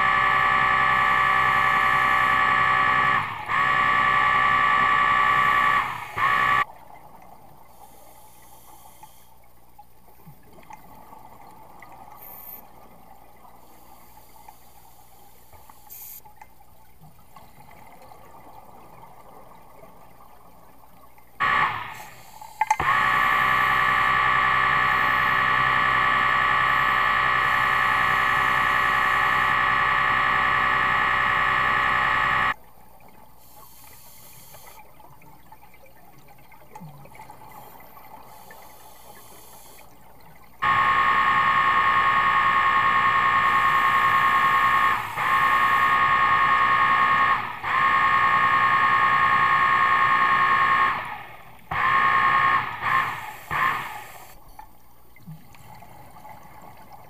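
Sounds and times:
loud buzzing drone: 0.0s - 6.6s, 21.4s - 32.6s, 40.6s - 54.3s.

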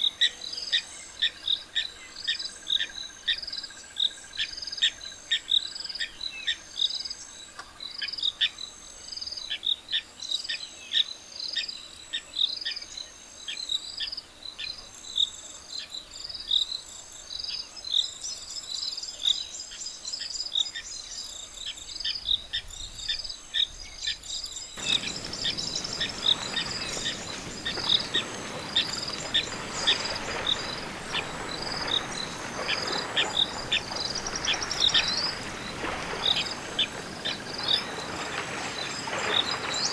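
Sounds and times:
insects chirping: 24.4s - 39.9s
elephants wading through water: 24.8s - 39.9s.

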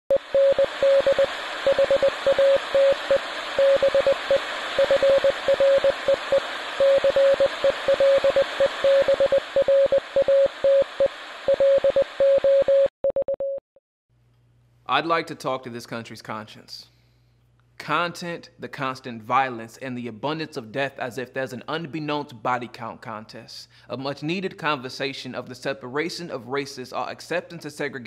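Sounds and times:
morse code beeps: 0.1s - 13.6s
radio static hiss: 0.2s - 12.0s.

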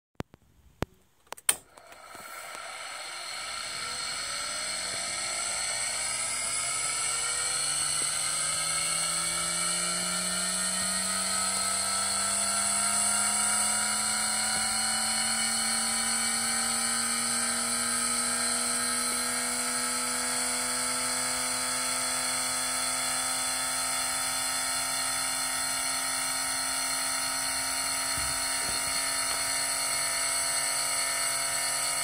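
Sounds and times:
sharp clicks: 0.2s - 2.6s
gyro whine climbing in pitch: 2.0s - 32.0s.

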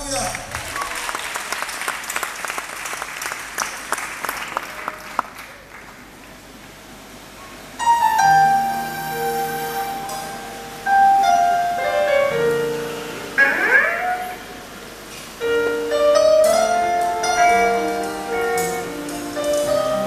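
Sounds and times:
audience applause: 0.0s - 6.3s
keyboard playing held chords: 7.8s - 20.0s.

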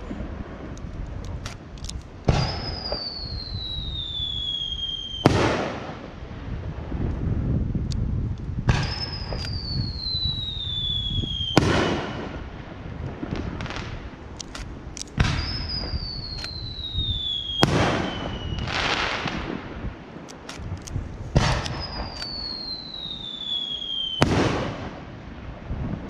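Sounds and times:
rumbling and crackling bursts: 0.0s - 2.6s
firework shells bursting with bangs: 0.1s - 3.4s, 8.7s - 25.2s
falling firework whistle: 2.3s - 5.9s, 8.7s - 12.4s, 15.2s - 19.4s, 21.4s - 24.9s.

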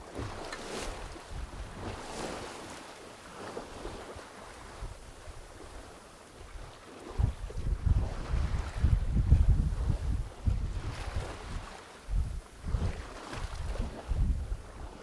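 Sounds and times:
water splashing along hull: 0.0s - 15.0s
wind buffeting microphone: 0.2s - 2.7s, 6.5s - 15.0s.

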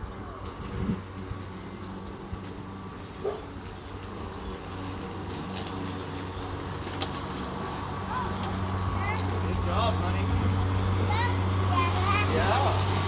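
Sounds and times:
lawn mower running: 0.0s - 13.0s.

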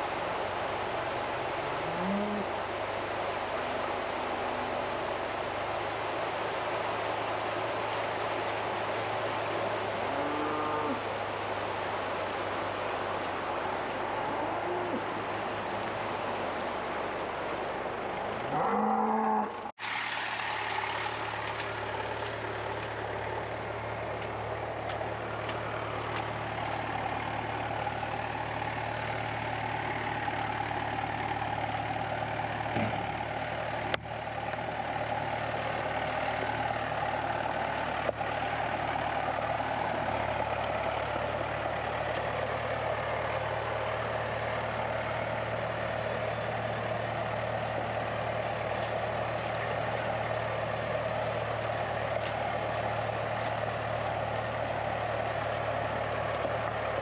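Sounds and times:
tractor engine running: 0.0s - 10.2s, 11.0s - 57.0s
cow mooing: 1.8s - 2.5s, 10.1s - 11.0s, 14.2s - 15.1s, 18.5s - 19.7s.

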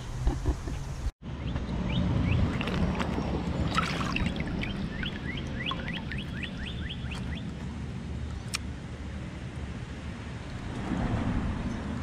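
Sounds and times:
river water sloshing and splashing: 2.3s - 7.5s
water drip plinks: 2.4s - 7.5s.

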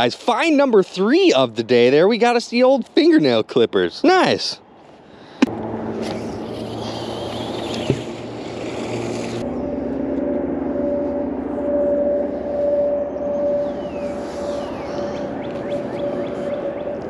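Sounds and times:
engine drone: 4.7s - 17.0s.

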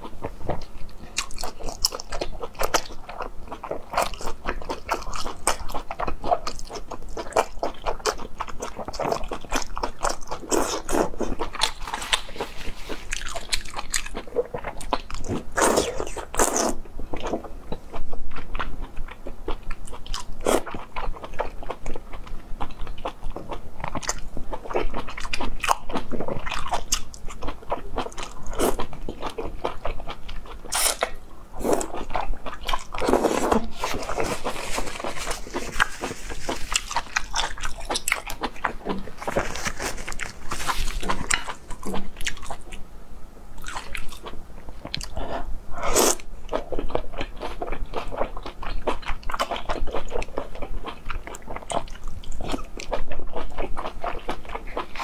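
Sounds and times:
wet chewing and biting: 0.5s - 17.3s, 19.7s - 42.8s.

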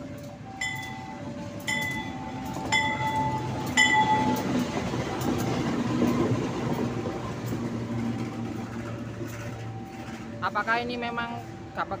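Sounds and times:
diesel engine hum: 0.0s - 12.0s
train wheels clattering on rail: 1.6s - 10.5s.

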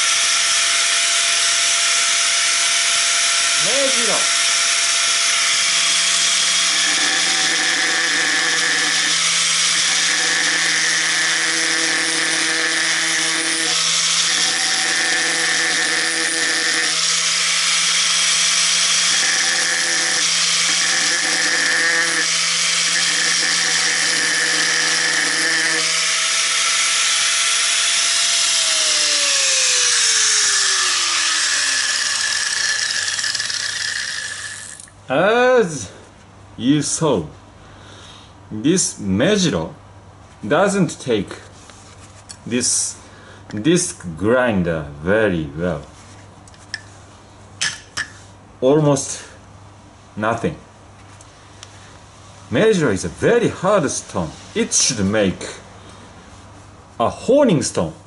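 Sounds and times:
angle grinder grinding stone: 0.0s - 34.9s
grinder disc spinning down: 0.0s - 34.9s.

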